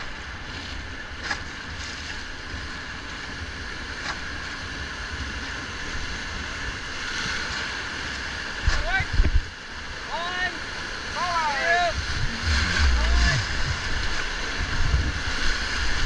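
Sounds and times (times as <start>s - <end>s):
wind rumbling on microphone: 0.0s - 9.6s, 11.8s - 16.0s
whitewater rushing: 7.0s - 16.0s.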